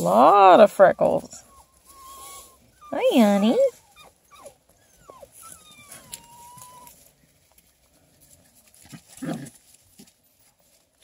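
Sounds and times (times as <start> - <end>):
puppy whining: 0.3 - 7.0.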